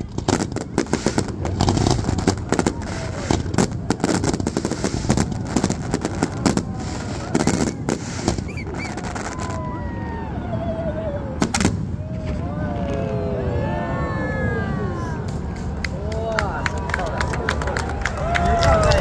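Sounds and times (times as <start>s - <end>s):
fireworks bangs and crackles: 0.0s - 10.4s, 11.3s - 13.5s, 15.0s - 16.4s.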